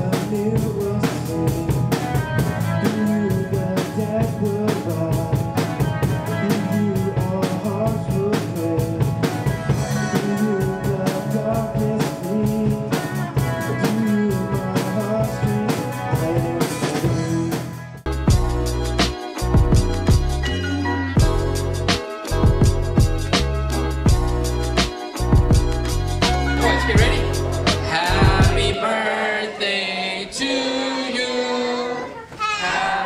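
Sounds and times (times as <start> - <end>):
person singing: 0.0 - 17.5, 26.3 - 33.0
electric guitars: 0.0 - 18.0
bass guitar: 0.0 - 28.8
drum kit beat: 0.0 - 29.3.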